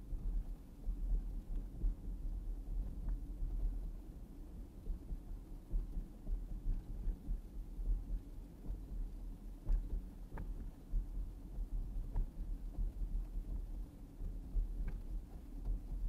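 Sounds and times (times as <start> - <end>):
faint clicks: 9.6 - 16.0.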